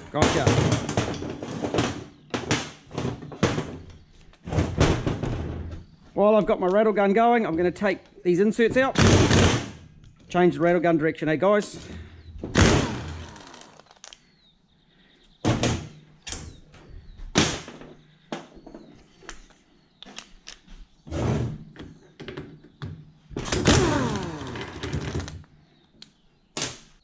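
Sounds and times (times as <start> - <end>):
pneumatic impact wrench whining: 12.5 - 14.0, 23.4 - 25.4.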